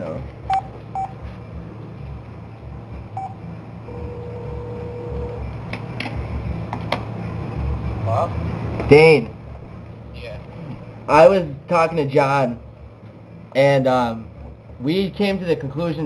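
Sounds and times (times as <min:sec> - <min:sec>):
keypad beeps: 0:00.5 - 0:01.2.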